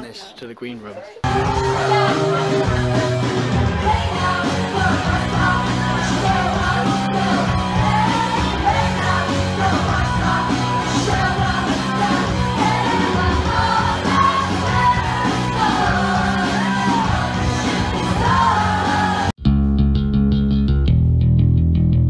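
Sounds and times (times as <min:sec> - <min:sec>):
live rock band playing: 0:01.2 - 0:19.3
plucked guitar and bass track: 0:01.2 - 0:22.0.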